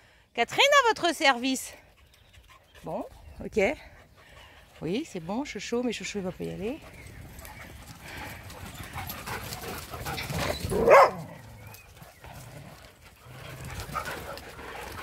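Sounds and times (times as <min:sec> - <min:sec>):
dog barking: 0:10.7 - 0:11.4.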